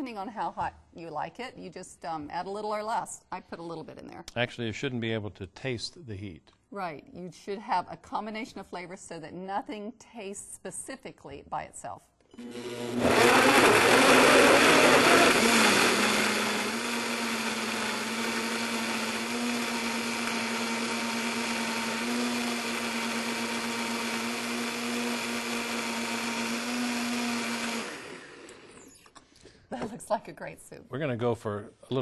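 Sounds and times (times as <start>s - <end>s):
blender running: 12.4s - 29.2s.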